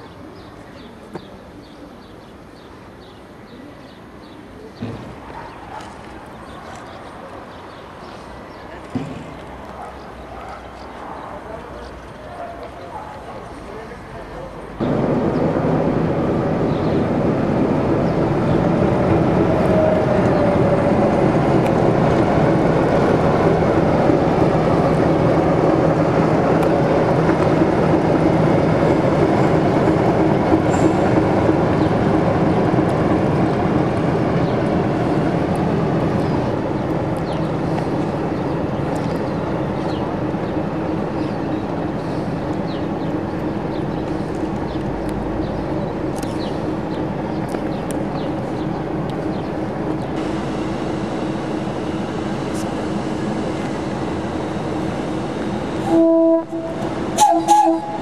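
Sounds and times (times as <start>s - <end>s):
diesel locomotive engine running: 14.2s - 58.0s.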